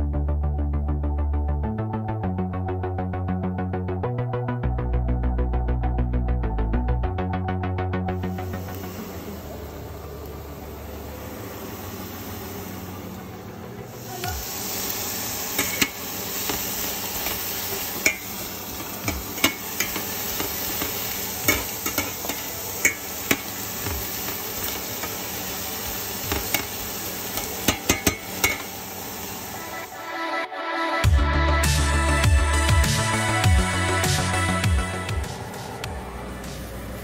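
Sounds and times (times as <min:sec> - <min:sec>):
vegetables sizzling in a frying pan: 0:08.2 - 0:30.0.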